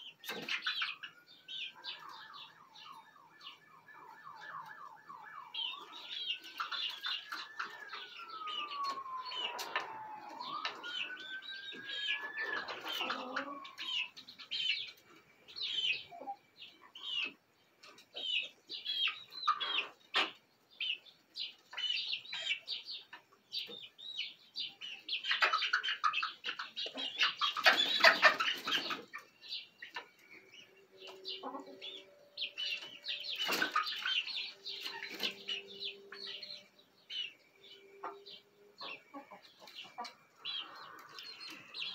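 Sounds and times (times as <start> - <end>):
chicks peeping and chirping: 0.0 - 41.9
distant siren wailing: 0.7 - 17.4, 25.3 - 41.9.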